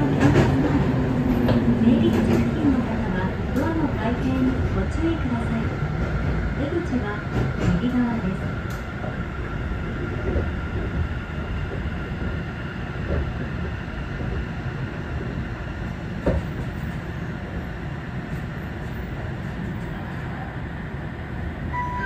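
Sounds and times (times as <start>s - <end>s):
train wheels rumbling: 0.0s - 20.5s
faint high tone: 21.7s - 22.0s.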